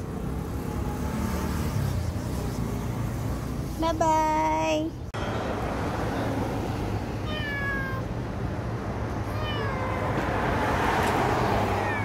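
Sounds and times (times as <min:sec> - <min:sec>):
cat meowing: 0:07.2 - 0:08.1, 0:09.2 - 0:10.2, 0:11.8 - 0:12.0.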